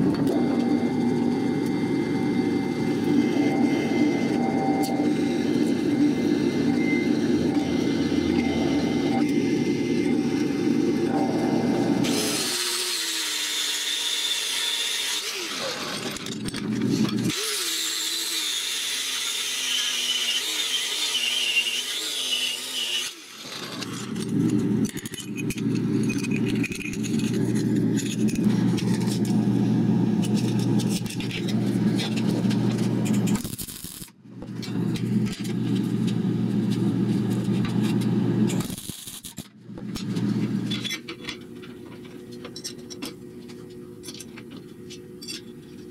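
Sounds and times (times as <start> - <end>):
angle grinder running: 12.0 - 37.9
welder arcing: 33.0 - 36.1, 38.5 - 40.0.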